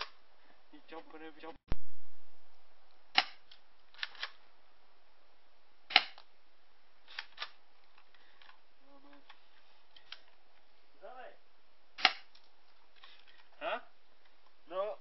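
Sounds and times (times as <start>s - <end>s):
airsoft gun firing pops: 3.1s - 3.5s, 5.9s - 6.3s, 12.0s - 12.4s.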